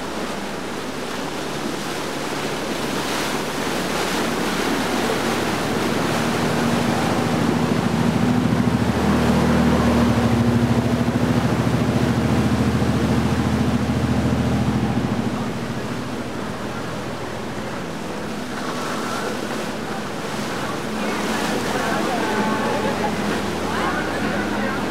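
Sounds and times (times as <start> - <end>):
motorboat engine running: 0.0 - 24.9
rushing water: 0.0 - 24.9.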